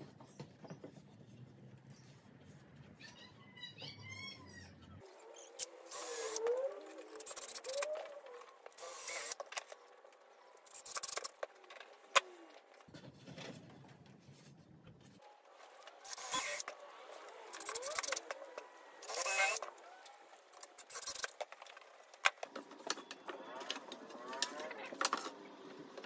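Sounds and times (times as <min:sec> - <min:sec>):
tools and wood being moved: 0:06.4 - 0:26.0.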